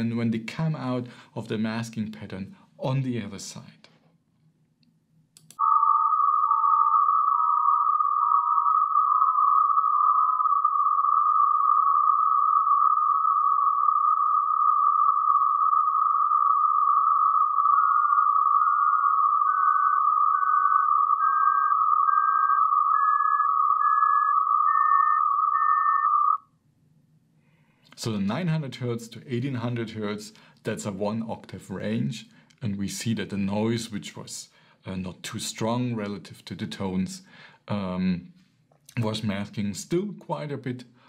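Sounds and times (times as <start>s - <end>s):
short sine-tone beeps: 5.6s - 26.4s.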